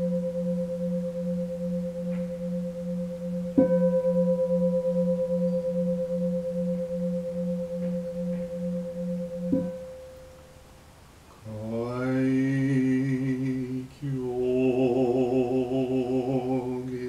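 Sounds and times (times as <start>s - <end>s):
bowl bell struck and ringing: 0.0s - 10.5s
low throbbing hum: 0.0s - 10.8s, 11.5s - 17.0s.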